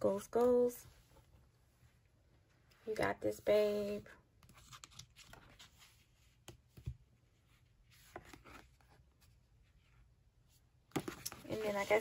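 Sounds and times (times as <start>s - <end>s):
paper rustle: 11.0s - 12.0s.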